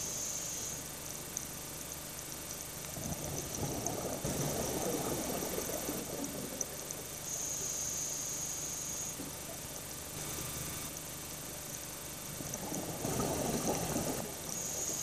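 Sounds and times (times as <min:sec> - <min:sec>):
bubbling exhale underwater: 0:02.8 - 0:07.3, 0:12.3 - 0:15.0.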